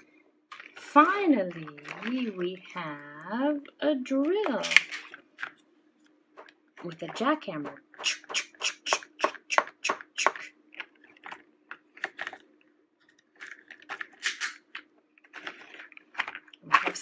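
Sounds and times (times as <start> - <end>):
rustling scrape: 15.3 - 17.0.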